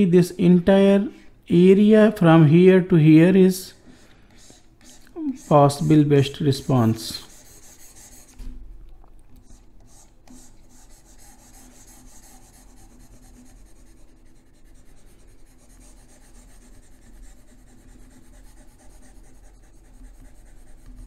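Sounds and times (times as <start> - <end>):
low electrical hum: 0.0 - 21.0
stylus scratching on touchscreen: 4.3 - 8.4, 9.4 - 14.8, 15.4 - 21.0.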